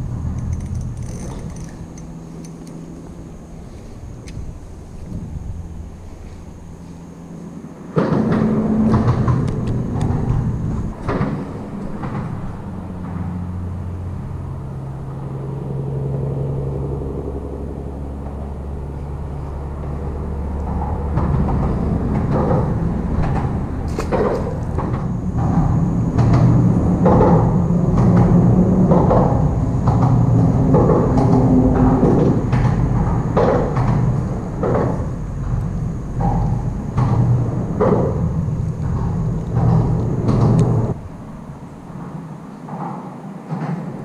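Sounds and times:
vehicles passing on bridge: 0:00.0 - 0:44.0
scattered knocks and thumps: 0:20.7 - 0:41.0.

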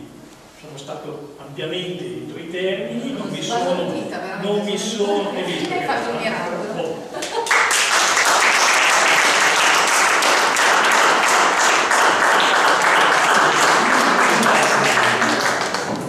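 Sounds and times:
audience applauding: 0:07.4 - 0:16.0.

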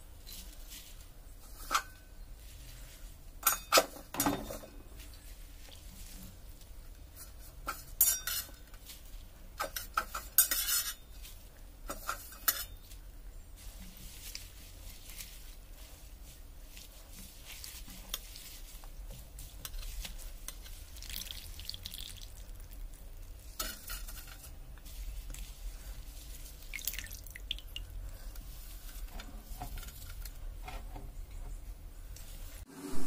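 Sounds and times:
water splashing and dripping: 0:20.9 - 0:22.7, 0:26.6 - 0:28.0.

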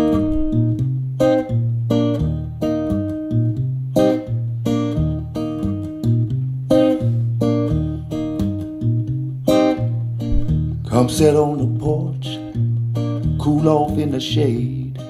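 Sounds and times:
heavy bass line: 0:00.0 - 0:02.6, 0:06.5 - 0:13.6
strummed guitar chords: 0:00.0 - 0:15.0.

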